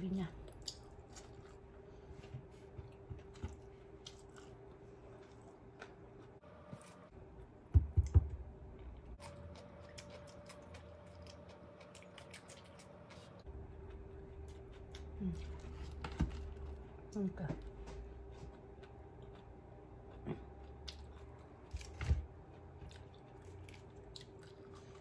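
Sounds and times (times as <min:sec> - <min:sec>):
faint steady hum: 0:00.0 - 0:25.0
chewing rice: 0:00.5 - 0:01.8, 0:02.8 - 0:07.0, 0:08.8 - 0:16.0, 0:18.2 - 0:25.0.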